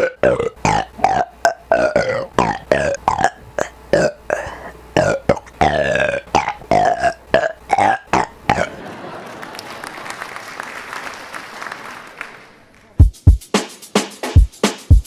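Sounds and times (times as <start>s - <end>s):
man burping: 0.0s - 8.8s
applause-like noise: 8.8s - 13.0s.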